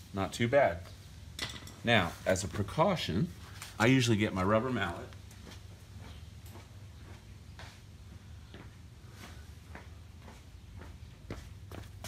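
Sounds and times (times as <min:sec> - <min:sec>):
faint footsteps: 0:03.4 - 0:12.0.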